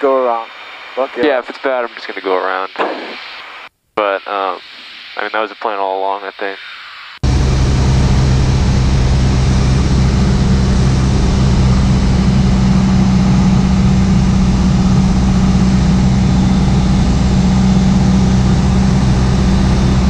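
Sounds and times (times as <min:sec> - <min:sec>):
propeller plane engine droning: 0:07.2 - 0:20.0.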